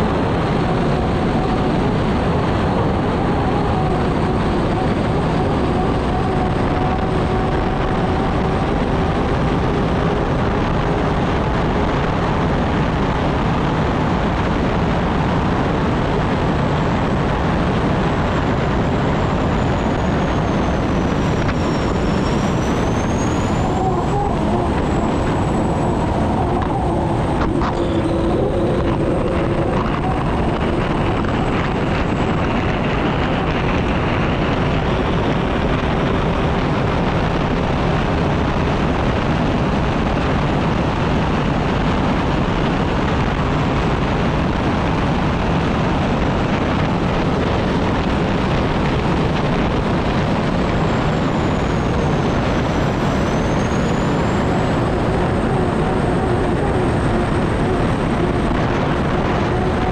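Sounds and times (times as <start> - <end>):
turbine engine roaring: 0.0 - 59.9
faint high whine: 16.1 - 39.5, 48.2 - 59.9.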